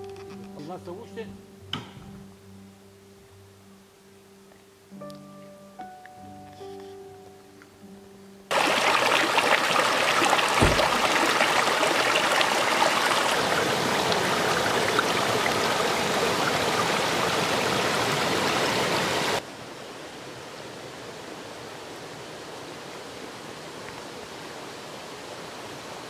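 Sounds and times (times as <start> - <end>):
rushing running water: 8.5 - 26.0
low thump: 10.6 - 11.4.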